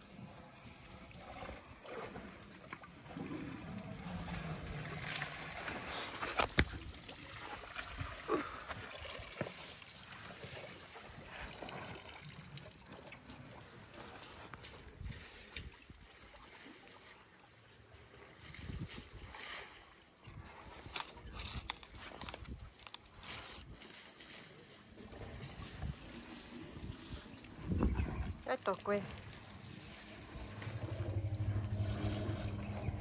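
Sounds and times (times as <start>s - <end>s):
water sloshing and splashing: 0.0s - 33.0s.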